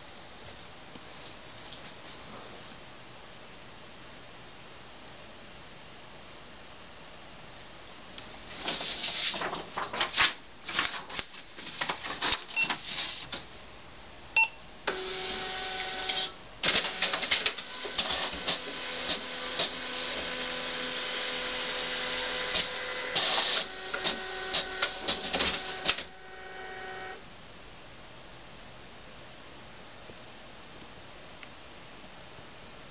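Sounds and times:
printer motor whine: 14.9 - 27.2
printer clacking and clicking: 15.8 - 21.3, 22.0 - 26.1.

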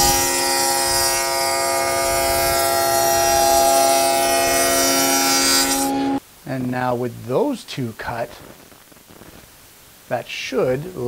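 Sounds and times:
board cutting on saw blade: 0.0 - 6.2
table saw whining: 0.0 - 6.2.

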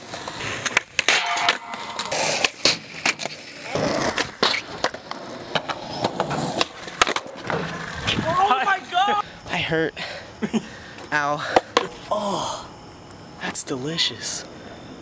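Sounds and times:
skateboard clacks popping and landing: 0.0 - 8.4, 11.5 - 12.0
skateboard wheels rolling on pavement: 0.0 - 9.8.

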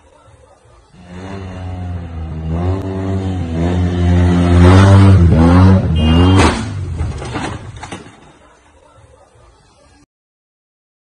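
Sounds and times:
motorcycle engine revving: 0.9 - 7.8.

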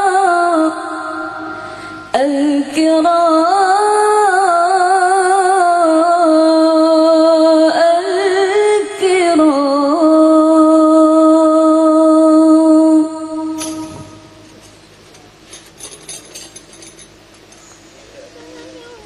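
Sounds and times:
person singing devotional song: 0.0 - 14.3.

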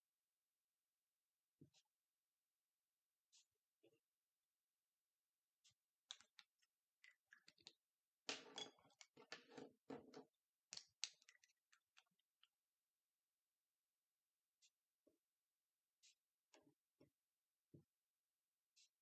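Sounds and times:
pen clicks: 6.1 - 7.8, 10.8 - 12.1.

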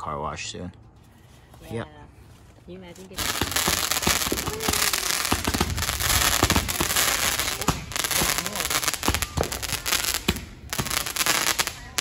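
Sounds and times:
fireworks popping and crackling: 2.9 - 12.0.

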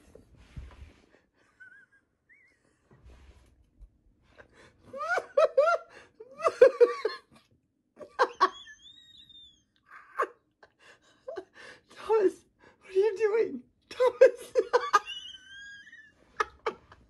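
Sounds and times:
high squeal in laughter: 8.4 - 9.8, 15.2 - 16.5.

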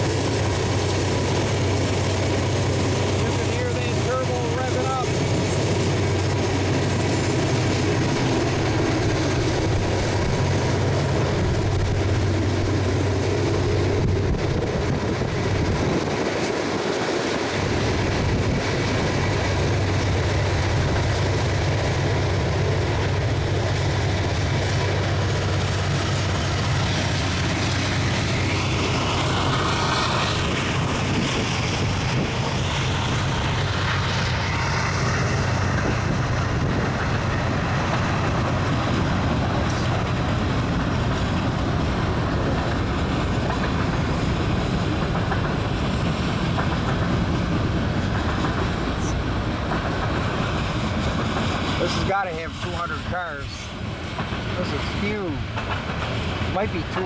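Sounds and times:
freight train rolling past: 0.0 - 57.0.

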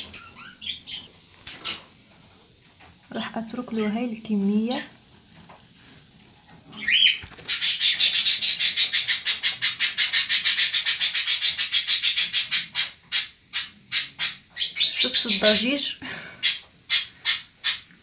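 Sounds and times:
bird chirping rapidly: 0.0 - 1.9, 6.8 - 15.8, 16.4 - 17.9.

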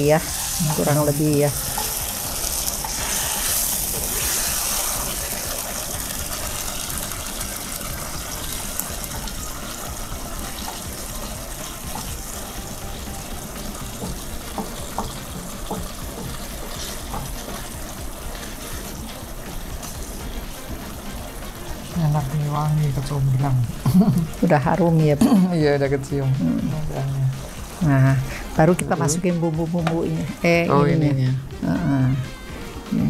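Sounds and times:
sauce sizzling and bubbling in wok: 0.0 - 30.2.

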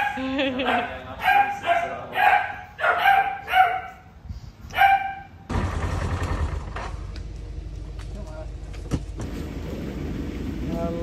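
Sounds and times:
utility vehicle engine idling: 5.5 - 11.0.

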